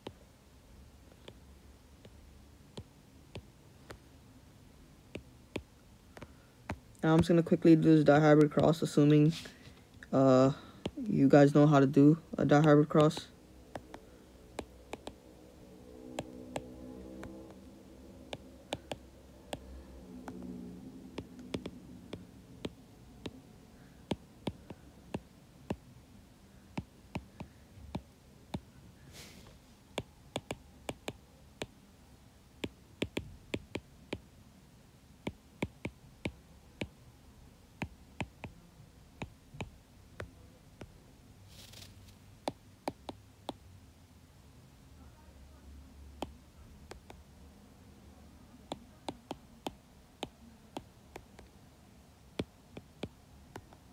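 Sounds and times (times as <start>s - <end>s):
soft hisses: 8.5s - 11.4s, 28.9s - 29.9s, 41.4s - 42.4s
stylus tapping on glass screen: 12.6s - 14.0s, 14.6s - 15.2s, 16.2s - 17.6s, 18.3s - 19.7s, 21.2s - 23.4s, 30.4s - 31.2s.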